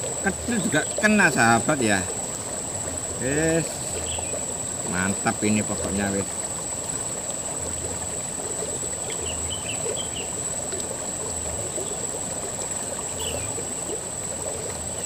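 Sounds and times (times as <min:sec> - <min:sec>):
river running over stones: 0:00.0 - 0:15.0
faint high chirps: 0:13.1 - 0:13.6.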